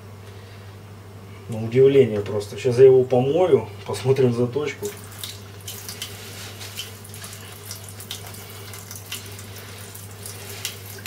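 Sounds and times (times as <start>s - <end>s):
tap water running into sink: 4.8s - 11.0s
water splashes: 4.8s - 11.0s.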